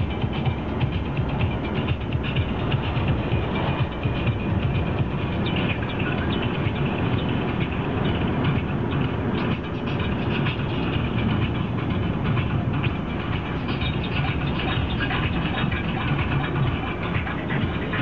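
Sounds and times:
car road and engine noise: 0.0s - 18.0s.

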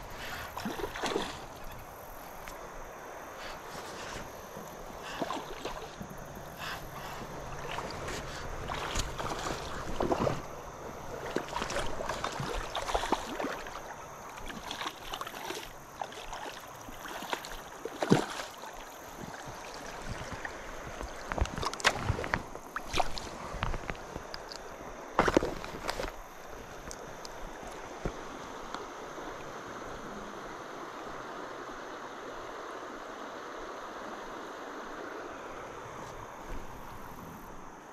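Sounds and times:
river water washing: 0.0s - 37.9s
fish splashing in water: 0.3s - 1.8s, 6.8s - 20.5s.

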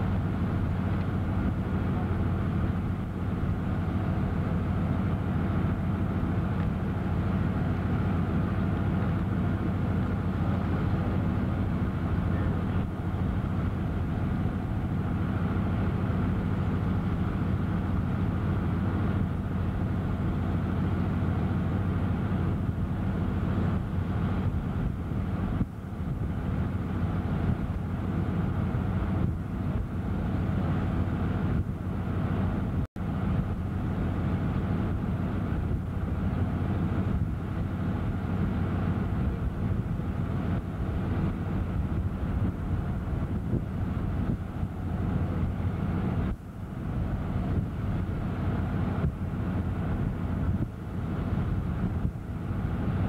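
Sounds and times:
low engine drone: 0.0s - 53.0s.

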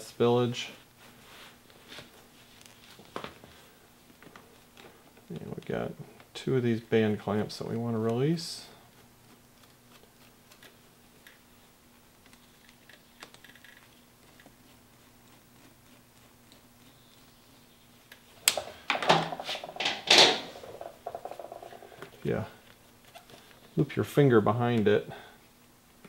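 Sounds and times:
faint steady hum: 0.0s - 26.0s
rag rustling and knocking: 18.4s - 22.3s.

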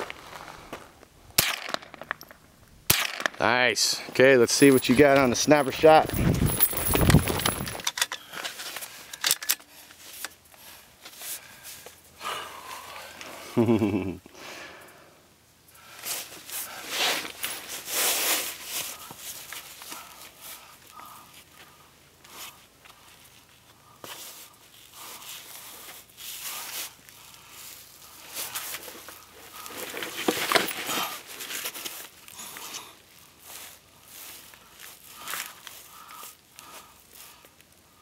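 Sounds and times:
footsteps on ground: 0.0s - 1.0s, 4.0s - 7.8s
clothing rustling: 4.6s - 7.8s.

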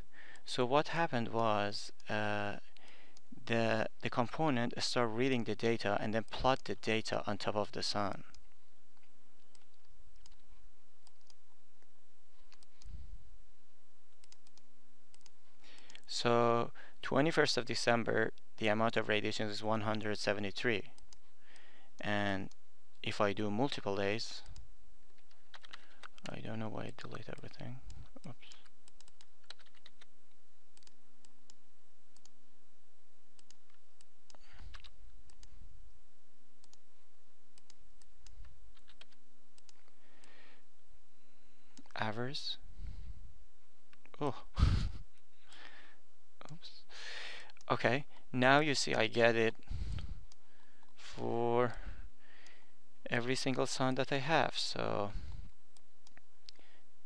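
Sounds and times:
steady low hum: 0.0s - 57.0s
computer mouse clicks: 8.3s - 11.4s, 14.2s - 16.1s, 25.2s - 26.4s, 27.1s - 30.1s, 32.2s - 32.4s, 33.4s - 35.5s, 36.6s - 36.8s, 37.6s - 40.4s.

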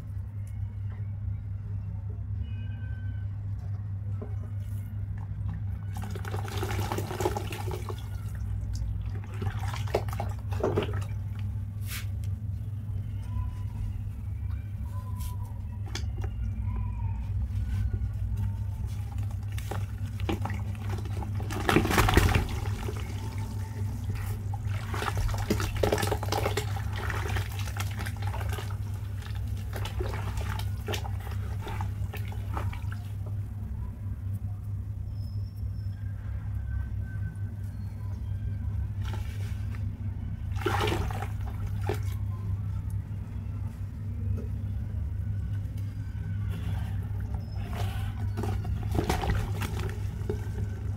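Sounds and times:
steady low hum: 0.0s - 50.9s
cement crumbling into water: 19.7s - 23.1s.

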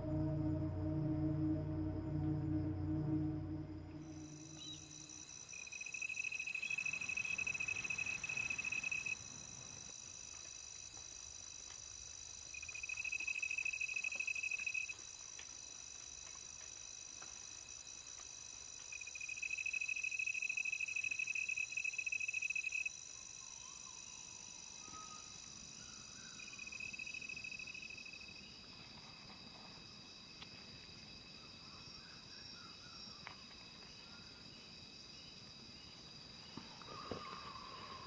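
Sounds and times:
high-pitched insect calls: 0.0s - 9.2s.

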